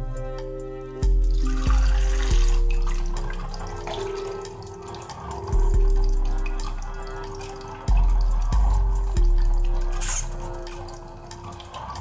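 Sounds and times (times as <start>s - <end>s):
soft background music: 0.0s - 12.0s.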